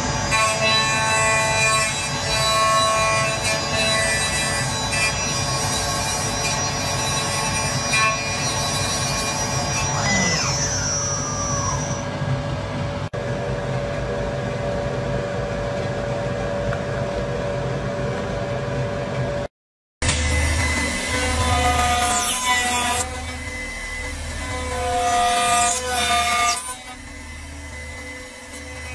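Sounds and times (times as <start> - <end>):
turning tool cutting wood: 0.3 - 12.1, 20.0 - 28.9
wood lathe droning: 5.2 - 12.2, 20.0 - 28.9.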